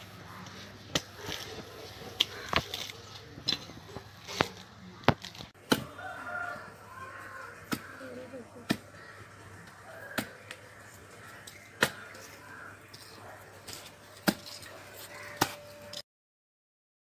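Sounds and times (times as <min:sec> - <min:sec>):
knife chopping coconut husk: 0:05.2 - 0:06.1, 0:07.6 - 0:08.0, 0:08.6 - 0:09.0, 0:09.7 - 0:10.6, 0:11.4 - 0:12.2, 0:13.7 - 0:15.6.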